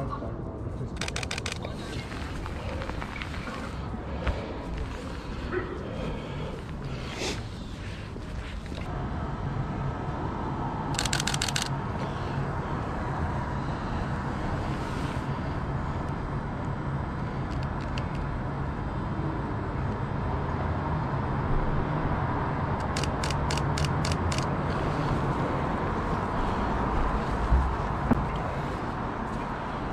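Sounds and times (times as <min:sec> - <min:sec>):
city background noise: 0:00.0 - 0:29.9
camera shutter clicks: 0:01.0 - 0:01.7, 0:11.0 - 0:11.7.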